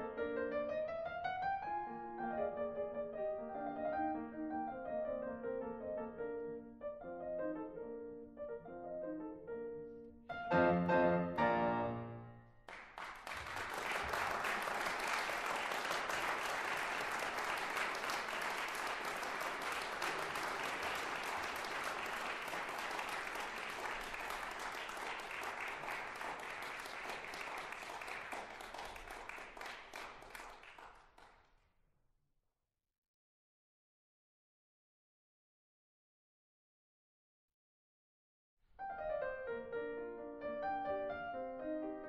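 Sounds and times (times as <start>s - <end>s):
piano piece: 0.0s - 12.8s, 38.8s - 42.0s
crowd applauding: 12.7s - 31.4s.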